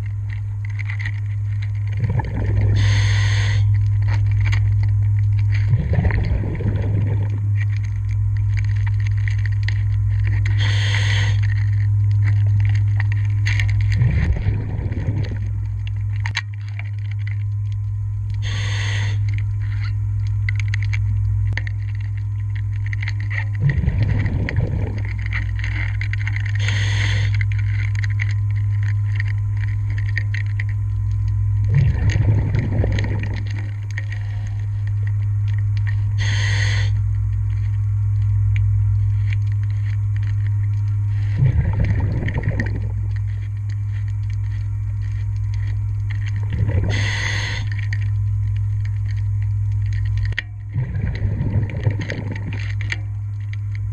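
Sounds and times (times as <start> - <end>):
steady low hum: 0.0 - 53.9
diver breathing through regulator: 2.0 - 3.8, 10.5 - 11.6, 18.4 - 19.3, 26.5 - 27.5, 36.1 - 37.0, 46.5 - 47.9.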